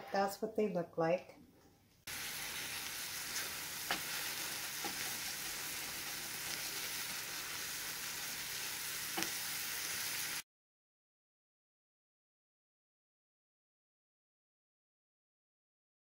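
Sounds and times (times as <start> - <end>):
apple filling sizzling in a pan: 2.1 - 10.4.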